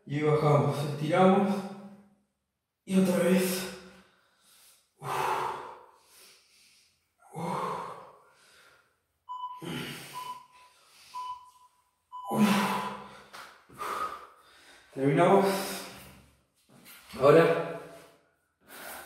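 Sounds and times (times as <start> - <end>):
man breathing heavily: 3.4 - 11.2, 12.2 - 16.3, 17.7 - 19.0.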